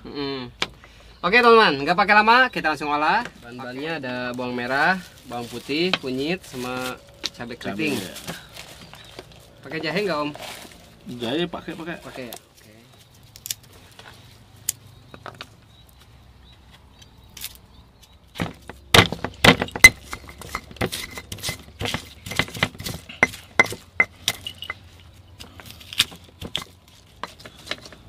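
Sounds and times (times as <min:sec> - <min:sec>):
stone pestle knocking in mortar: 0:18.4 - 0:24.4.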